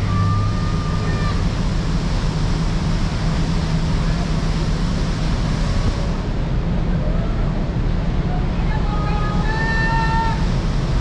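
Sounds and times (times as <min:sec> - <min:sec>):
low hum from ship: 0:00.0 - 0:11.0
rushing sea water: 0:00.0 - 0:11.0.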